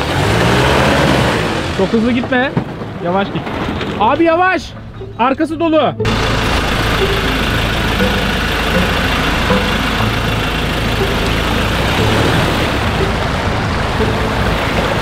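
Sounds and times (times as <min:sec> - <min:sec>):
truck engine running at low revs: 0:04.8 - 0:15.0.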